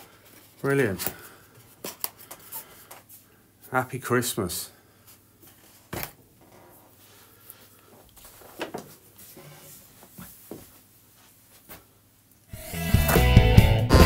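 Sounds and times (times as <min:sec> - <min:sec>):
music: 0:12.5 - 0:14.0.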